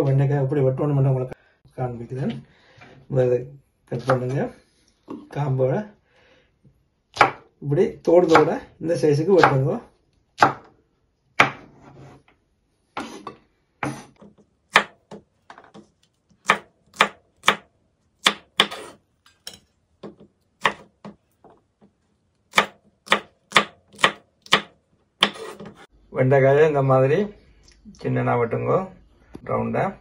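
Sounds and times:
knife chopping on wooden board: 7.2 - 7.5, 10.4 - 10.7, 11.4 - 11.7, 13.0 - 15.8, 16.4 - 21.2, 22.5 - 25.8.

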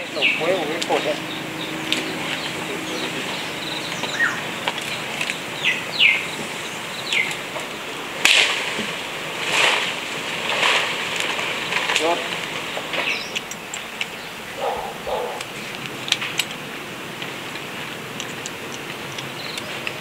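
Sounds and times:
bird whistles: 0.2 - 5.0
rustling swishes: 7.3 - 13.1.

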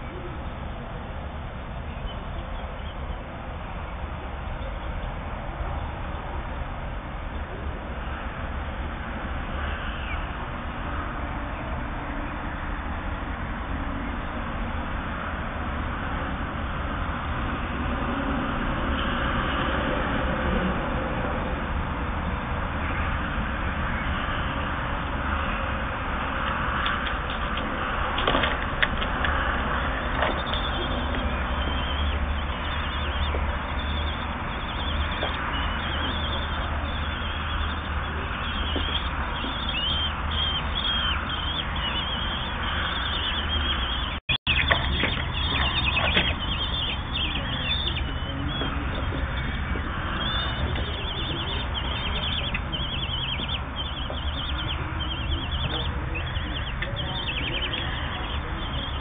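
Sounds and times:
nestlings begging calls: 22.3 - 59.0.

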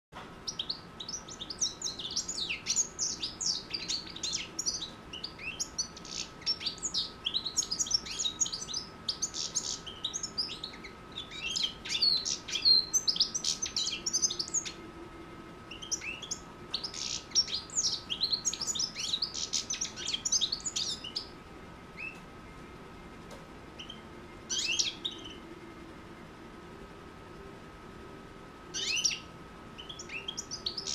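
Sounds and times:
faint steady whine: 0.2 - 30.9
goldfinch singing: 0.4 - 14.8, 15.7 - 21.3, 23.8 - 25.4, 28.7 - 30.9.

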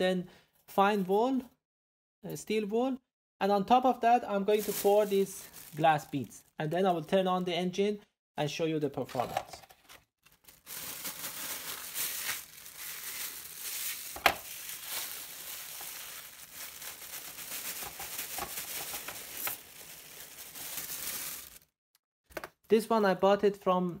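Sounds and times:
plastic bag crinkling: 4.6 - 6.3, 10.2 - 21.7.

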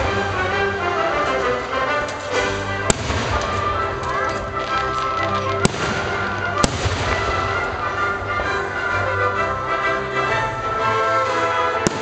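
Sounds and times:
music playing: 0.0 - 12.0
firework shells bursting: 2.9 - 7.7.

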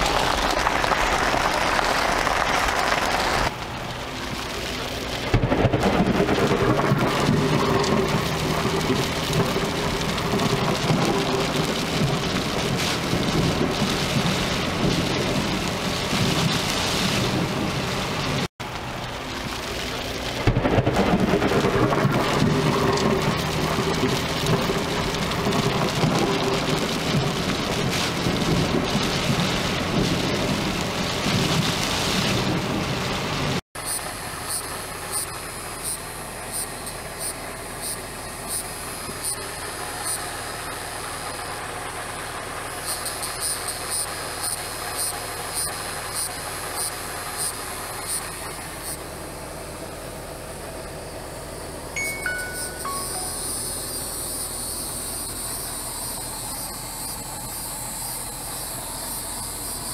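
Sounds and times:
heavy rain pouring: 0.0 - 59.9
short high chirps: 52.0 - 54.1.

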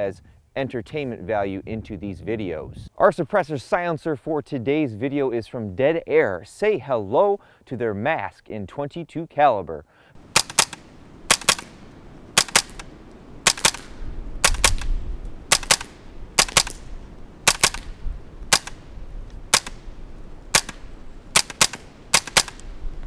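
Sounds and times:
suppressed rifle shots: 10.2 - 18.9, 19.5 - 22.8.

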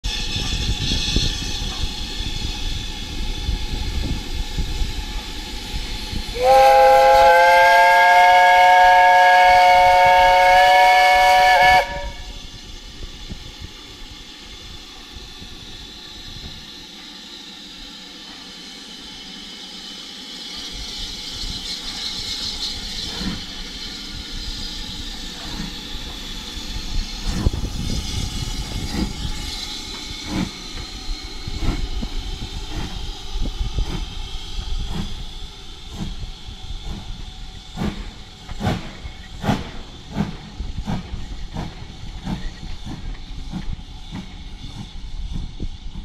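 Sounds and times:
steam hiss: 0.0 - 46.0
steam whistle blast: 6.3 - 12.4.

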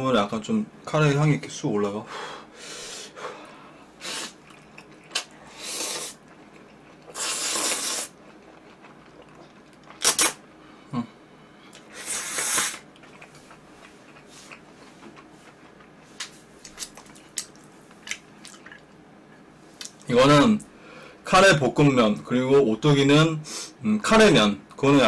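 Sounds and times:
noodles being slurped: 5.2 - 6.3, 6.9 - 8.2, 9.9 - 10.4, 11.9 - 13.3.

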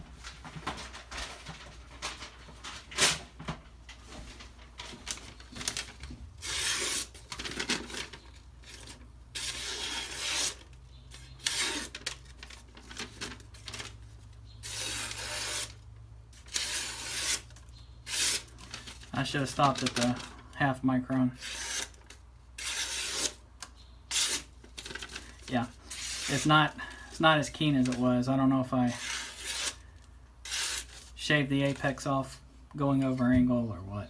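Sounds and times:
paper rustling: 0.1 - 15.8, 16.5 - 20.4, 27.5 - 28.2
knife slicing paper: 6.4 - 7.2, 8.7 - 12.2, 14.6 - 15.8, 16.4 - 18.5, 21.4 - 22.0, 22.6 - 23.4, 24.1 - 24.5, 25.9 - 26.5, 28.9 - 29.8, 30.4 - 31.1.

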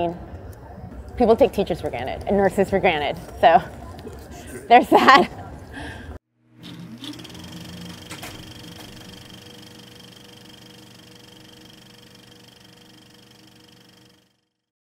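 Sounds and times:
held chord of steady tones: 7.0 - 14.4.

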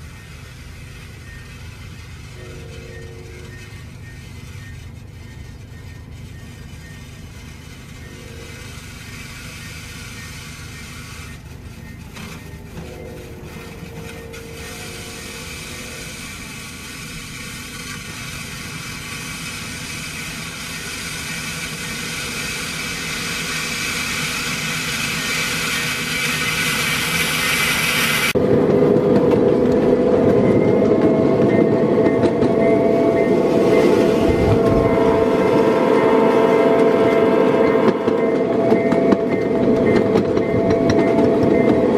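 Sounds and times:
snow plow scraping icy snow: 0.0 - 28.4
miniature train rumbling: 0.0 - 41.9
steady whining tones: 0.0 - 41.9.

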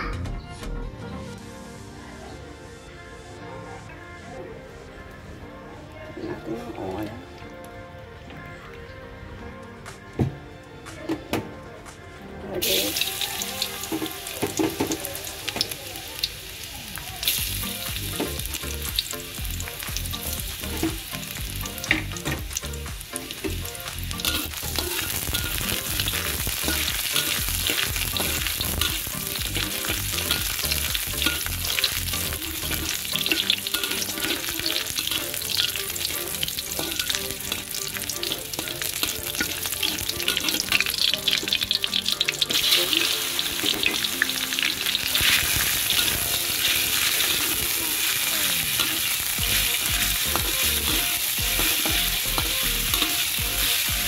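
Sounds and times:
garlic sizzling in hot oil: 12.6 - 54.0
metal spatula scraping wok: 24.2 - 53.9.

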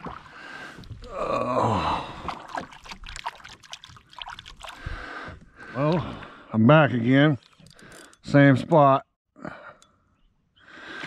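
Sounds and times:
person sighing: 1.0 - 2.5
water trickling and dripping: 2.2 - 5.0.

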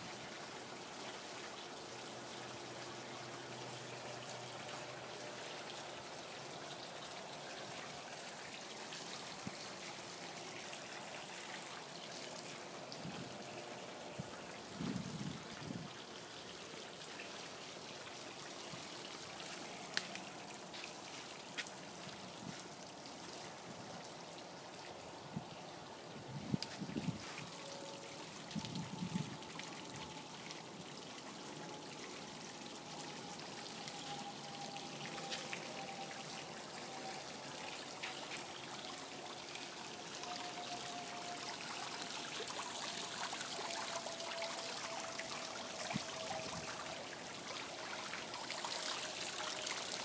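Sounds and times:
water rushing: 0.0 - 50.0.

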